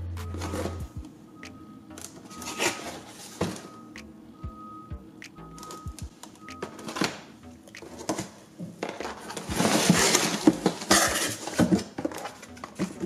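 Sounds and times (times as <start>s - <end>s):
cardboard boxes scraping and rustling: 8.0s - 13.0s.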